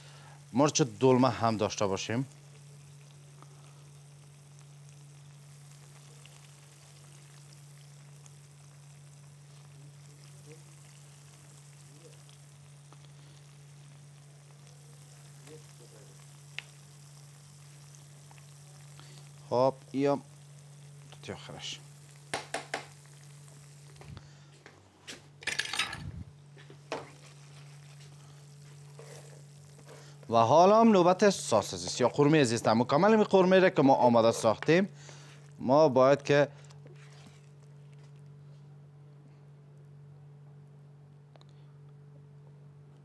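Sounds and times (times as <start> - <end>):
peppers sizzling in frying pan: 0.0 - 35.9
steady low hum: 0.0 - 43.0
small pops: 16.5 - 16.8, 22.2 - 23.2
metal spoon clinking on pan: 25.4 - 26.0.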